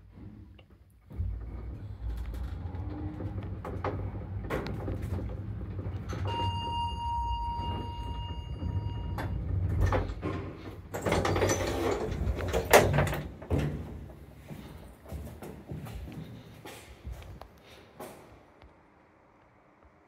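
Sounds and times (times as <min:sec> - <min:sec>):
lift running hum: 0:00.1 - 0:17.2
sliding doors running: 0:00.2 - 0:14.5
electronic beep: 0:06.3 - 0:09.4.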